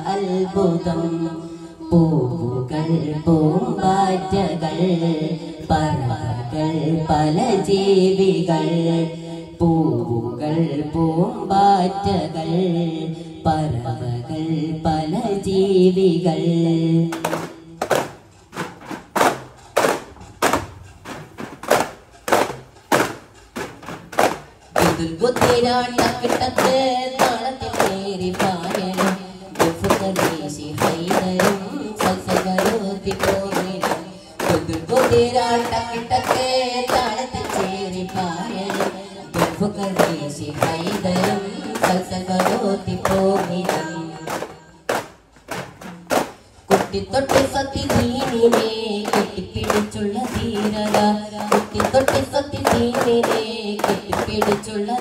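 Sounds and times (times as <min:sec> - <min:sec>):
frame drums beating: 0:17.1 - 0:55.0
group chanting: 0:24.8 - 0:44.5.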